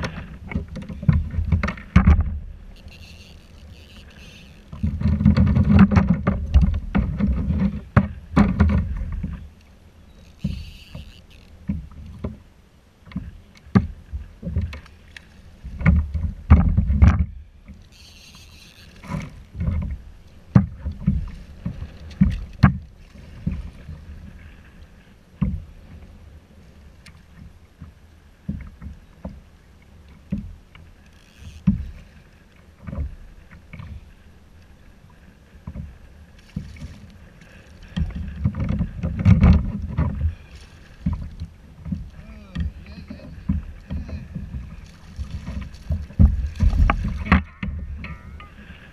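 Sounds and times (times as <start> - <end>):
water slapping against kayak hull: 0.0 - 9.5, 13.0 - 17.8, 18.8 - 26.2, 26.9 - 48.9.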